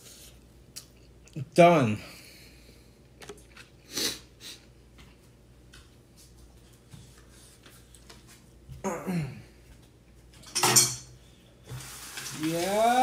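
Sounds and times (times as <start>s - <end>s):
person chewing food: 3.2s - 4.3s.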